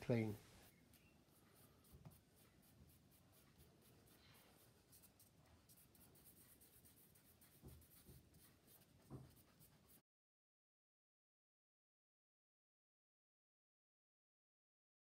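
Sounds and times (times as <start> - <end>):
charcoal scratching on paper: 0.2 - 10.0.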